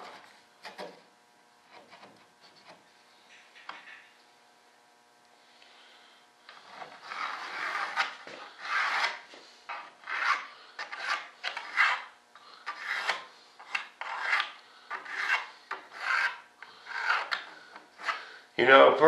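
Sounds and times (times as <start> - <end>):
rasping strokes on balsa wood: 6.5 - 18.4.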